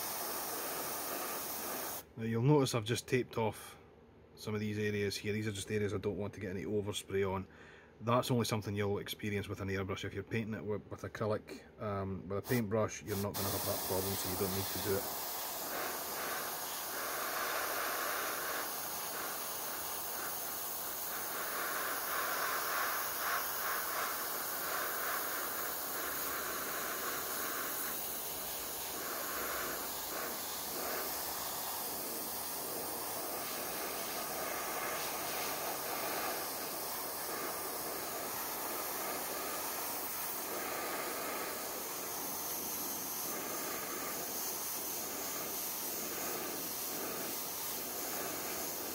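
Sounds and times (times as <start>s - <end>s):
airbrush spraying: 0.0s - 2.1s, 12.4s - 48.9s.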